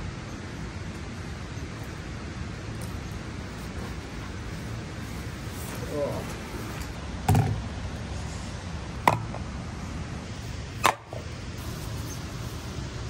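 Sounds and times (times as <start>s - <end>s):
steady background hiss: 0.0s - 13.0s
camping gear knocks: 7.3s - 7.7s.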